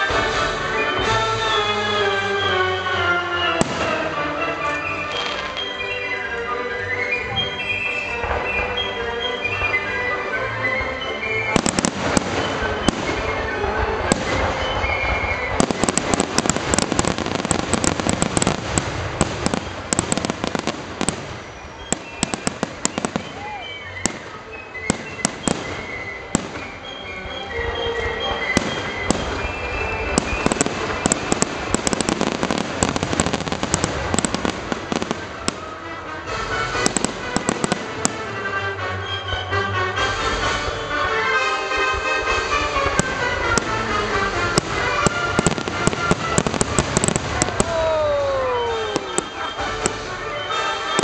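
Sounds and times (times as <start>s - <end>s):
fireworks bursting with bangs: 0.0s - 6.4s, 7.0s - 51.0s
music playing: 0.0s - 51.0s.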